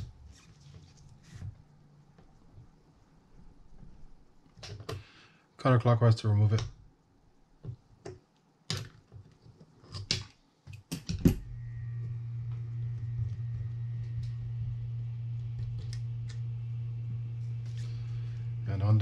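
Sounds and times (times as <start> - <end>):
steady low hum: 11.3 - 19.0.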